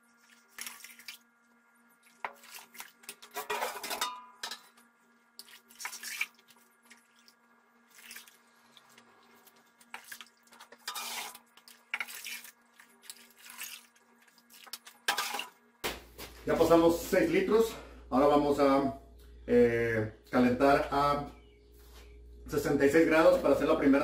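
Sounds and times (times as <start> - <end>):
faint steady hum: 0.0 - 24.0
metal scoop scraping kettle: 2.5 - 4.7, 10.7 - 12.4, 15.0 - 15.5.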